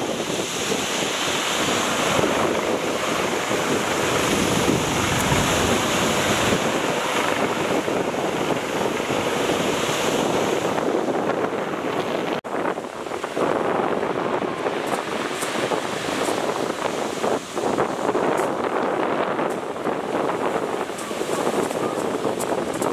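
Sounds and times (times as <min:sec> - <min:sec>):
wind on microphone: 0:00.0 - 0:22.9
surf breaking: 0:00.3 - 0:11.0.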